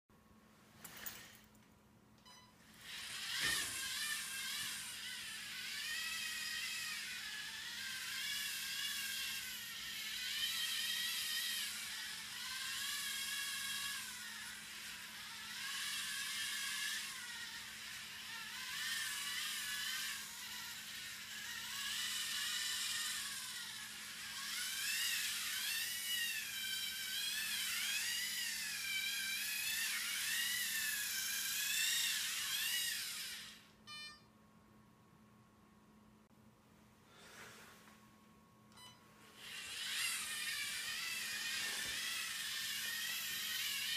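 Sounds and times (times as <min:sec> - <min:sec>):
robot motor whine: 0:02.6 - 0:34.2, 0:38.8 - 0:43.9.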